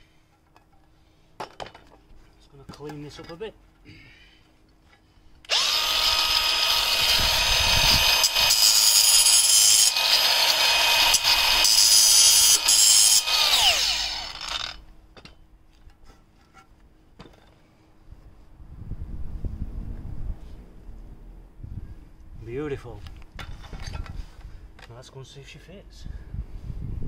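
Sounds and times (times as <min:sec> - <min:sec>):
angle grinder cutting stone: 0:05.5 - 0:14.8
grinder motor winding down: 0:05.5 - 0:14.8.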